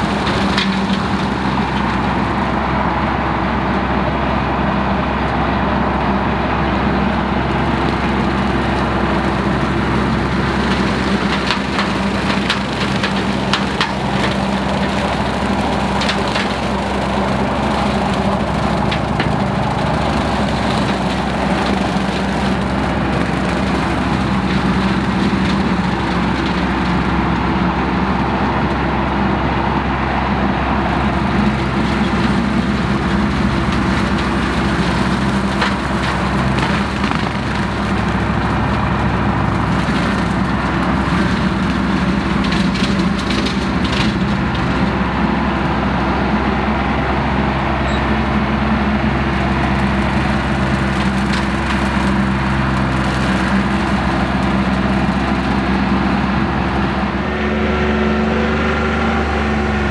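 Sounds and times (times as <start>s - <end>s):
tractor diesel engine running: 0.0s - 59.9s
rotary cutter mowing grass: 7.5s - 27.4s, 30.7s - 59.9s.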